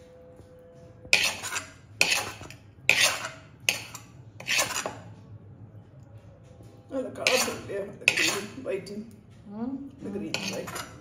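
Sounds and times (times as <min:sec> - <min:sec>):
steel ladle scraping a pan: 0:01.1 - 0:05.2, 0:07.2 - 0:08.7, 0:10.2 - 0:11.0.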